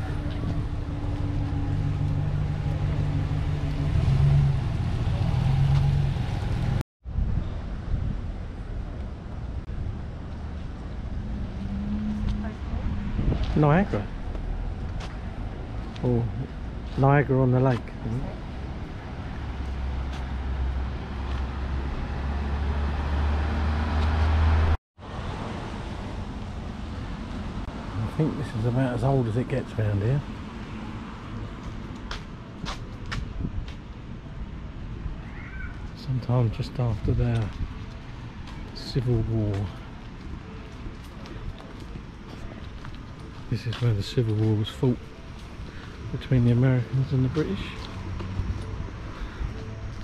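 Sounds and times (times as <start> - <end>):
engine humming: 0.0 - 6.8
motor vehicle running: 0.0 - 6.8, 9.0 - 17.1, 36.8 - 50.0
windy noise: 0.0 - 17.0, 30.2 - 50.0
outdoor background noise: 0.0 - 50.0
road noise: 0.0 - 50.0.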